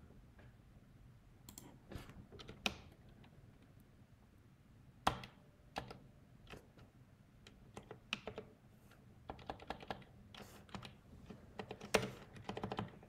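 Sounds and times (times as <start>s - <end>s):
computer keyboard typing: 7.7s - 8.5s, 9.3s - 11.0s, 11.6s - 13.0s.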